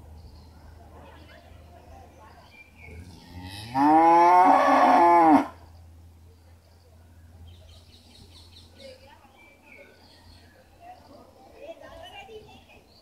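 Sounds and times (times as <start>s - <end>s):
calf mooing: 3.2s - 5.6s.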